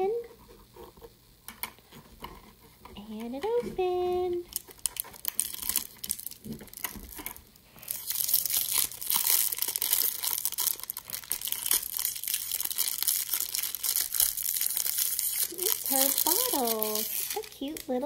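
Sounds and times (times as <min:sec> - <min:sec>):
wrapper crinkling and tearing: 0:04.4 - 0:18.0.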